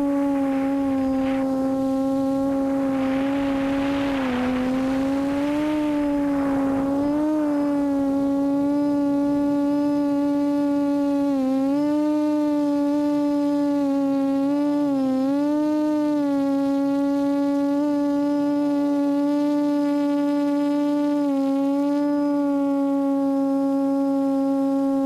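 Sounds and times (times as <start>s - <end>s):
hissy rushing noise: 0.0s - 10.9s
quadcopter motors humming: 0.0s - 23.5s.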